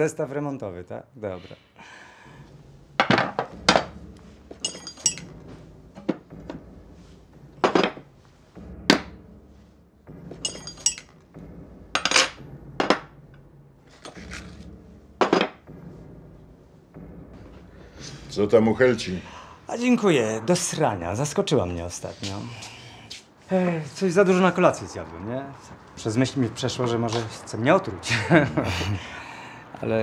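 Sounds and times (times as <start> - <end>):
metal tools set down on wood: 4.5 - 5.2, 10.4 - 11.0.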